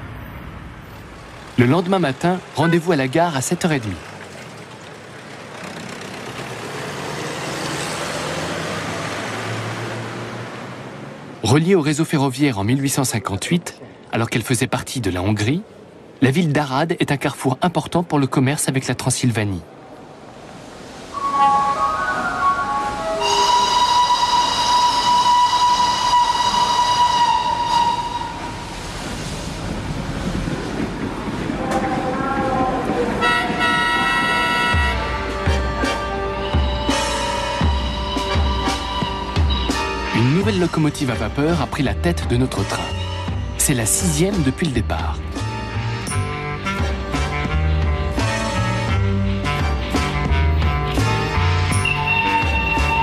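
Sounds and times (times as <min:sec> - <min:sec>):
vehicle passing close: 0:00.0 - 0:11.4
train whistle blast: 0:21.2 - 0:28.8, 0:33.2 - 0:40.4, 0:50.3 - 0:53.0
low rumble of train running: 0:21.5 - 0:53.0.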